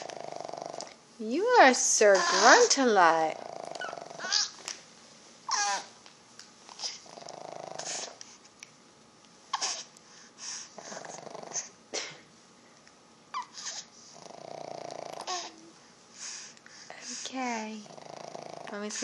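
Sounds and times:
rasping snores: 0.0 - 0.9, 3.3 - 4.3, 6.9 - 8.2, 10.8 - 11.7, 13.6 - 15.6, 17.8 - 18.9
baby grunts and squeaks: 2.1 - 2.8, 3.7 - 4.6, 5.5 - 5.9, 9.5 - 9.9, 13.4 - 13.9, 15.2 - 15.6.

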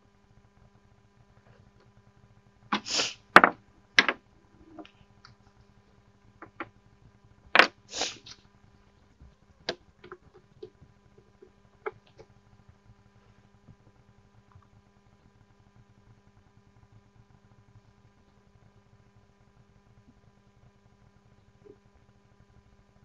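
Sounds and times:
short hissing rustles: 2.7 - 3.2, 7.9 - 8.4.

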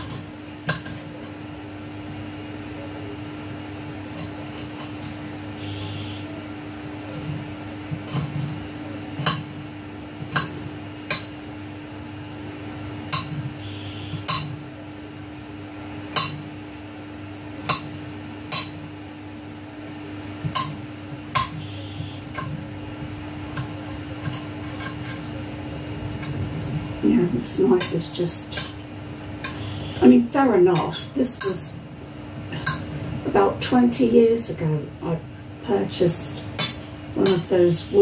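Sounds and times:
low hum: 19.6 - 38.0.

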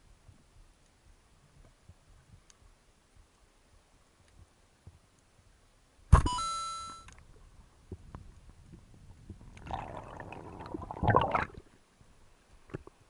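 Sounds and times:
water rushing and bubbling: 9.5 - 11.8.

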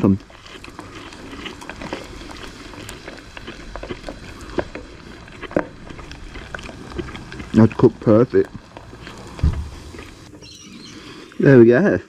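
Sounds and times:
food deep-frying in oil: 0.0 - 10.9.

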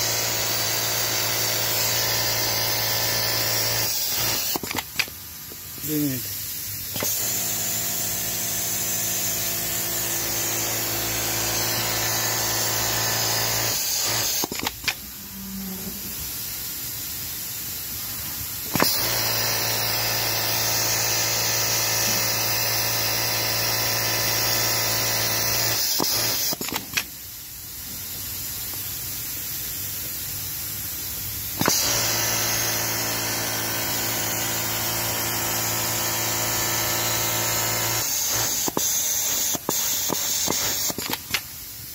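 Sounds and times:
sewing machine stitching: 9.9 - 15.0, 18.7 - 27.0, 31.6 - 41.4.

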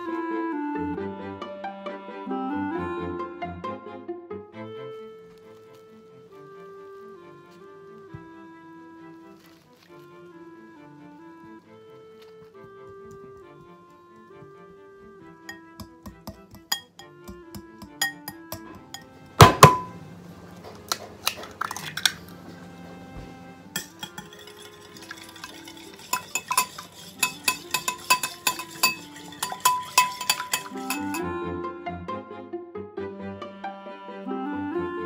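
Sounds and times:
light background music: 0.0 - 35.0
whisk beating liquid: 15.5 - 19.0, 23.7 - 31.2
whisk clinking on glass bowl: 15.5 - 19.9, 23.8 - 31.3.

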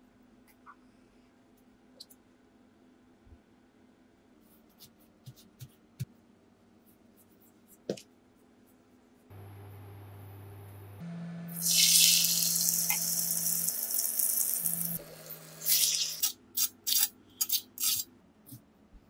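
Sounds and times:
fish sizzling in frying pan: 11.6 - 15.0.

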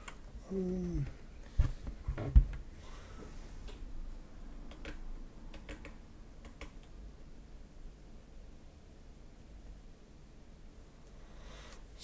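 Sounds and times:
mechanical keyboard clicks: 4.7 - 6.9.

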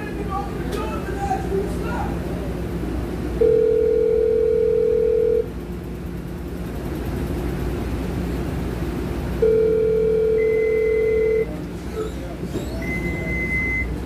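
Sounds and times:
low steady hum of rail car: 0.0 - 14.0
electronic door alert beep: 12.8 - 14.0.

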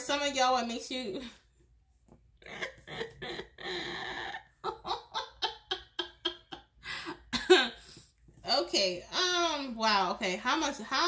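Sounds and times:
woman laughing: 2.4 - 7.8.

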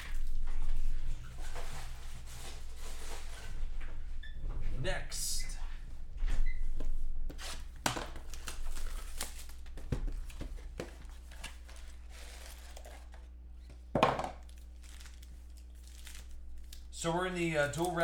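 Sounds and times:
foil packs rustling: 7.4 - 18.0
plastic wrap crinkling: 7.9 - 13.4, 14.4 - 18.0.

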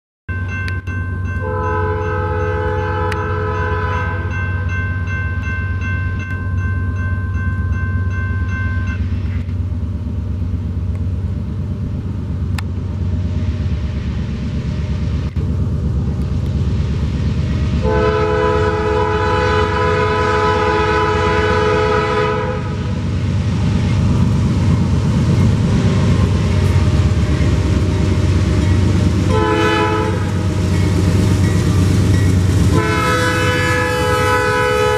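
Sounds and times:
diesel locomotives rumbling: 0.3 - 34.9
train air horn blasts: 1.4 - 4.4, 17.8 - 22.9, 29.2 - 30.5, 32.6 - 34.9.

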